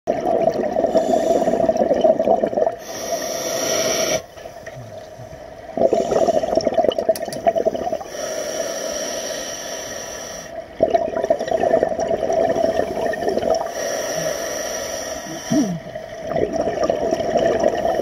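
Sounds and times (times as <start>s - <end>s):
bubbling exhalation underwater: 0.1s - 3.0s, 4.7s - 8.1s, 10.8s - 14.4s, 15.2s - 18.0s
hissing regulator inhalation: 2.8s - 4.3s, 12.8s - 15.9s.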